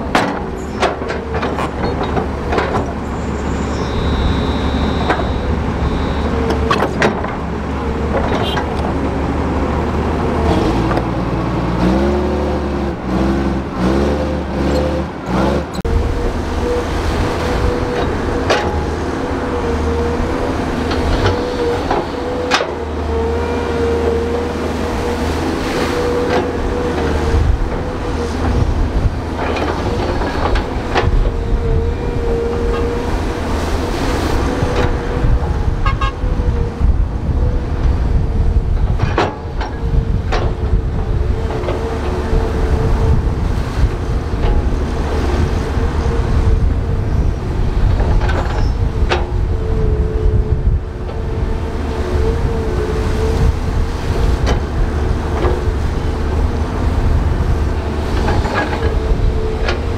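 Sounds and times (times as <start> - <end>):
metallic clanks and knocks: 0.0 - 3.0, 6.5 - 7.4, 18.0 - 19.0, 38.8 - 40.8
diesel machine engine rumbling: 0.0 - 59.9.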